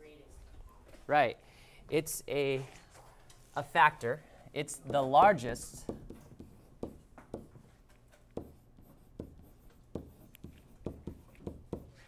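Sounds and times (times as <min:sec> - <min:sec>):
stylus tapping and scratching screen: 0:04.6 - 0:12.0.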